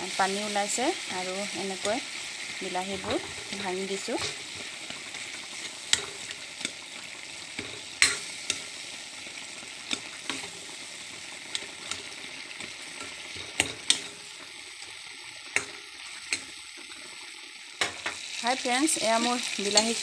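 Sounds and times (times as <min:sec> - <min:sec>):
tomatoes sizzling in a wok: 0:00.0 - 0:20.0
metal ladle scraping a pan: 0:01.5 - 0:09.0, 0:09.6 - 0:14.6.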